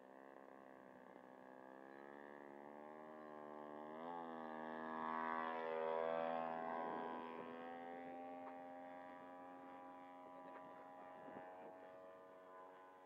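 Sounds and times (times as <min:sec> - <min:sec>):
model plane engine running: 0:00.0 - 0:13.0.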